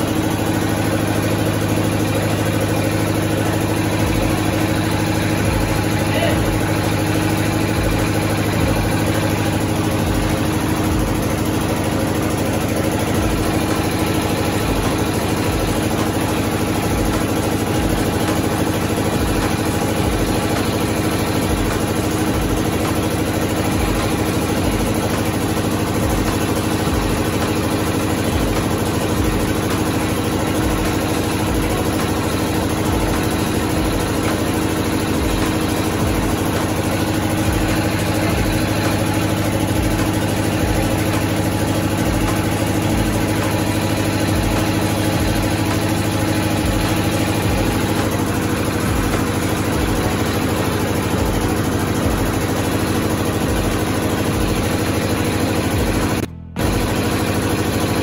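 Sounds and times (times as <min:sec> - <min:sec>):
drilling rig engine running: 0:00.0 - 0:58.0.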